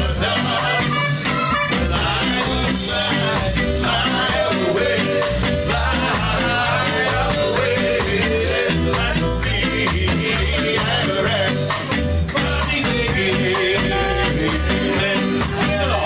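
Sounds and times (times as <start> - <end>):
saxophones and horns: 0.0 - 5.8
ska band playing live: 0.0 - 16.0.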